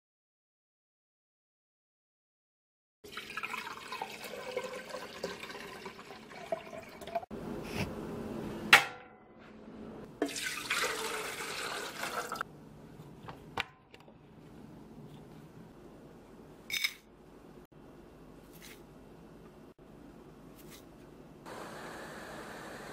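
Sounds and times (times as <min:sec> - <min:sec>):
water running into container: 0:03.0 - 0:07.3, 0:10.2 - 0:12.5.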